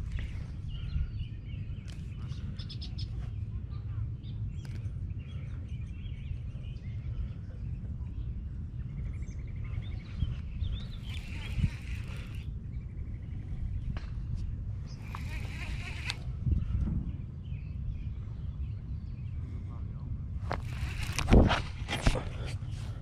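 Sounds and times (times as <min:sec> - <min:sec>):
birds chirping: 0:00.0 - 0:23.0
wind rumbling on microphone: 0:00.0 - 0:23.0
bird trill: 0:10.7 - 0:13.4.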